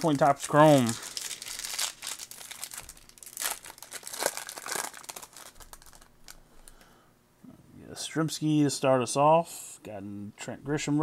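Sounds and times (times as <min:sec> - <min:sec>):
foil wrapper crinkling and tearing: 0:00.0 - 0:06.8.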